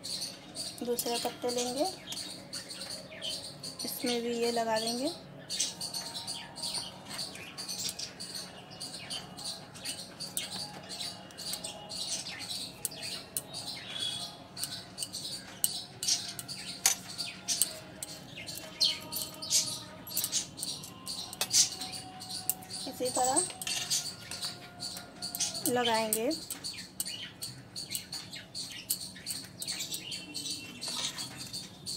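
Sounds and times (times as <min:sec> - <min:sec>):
metal spoon scraping steel plate: 0:10.4 - 0:31.6.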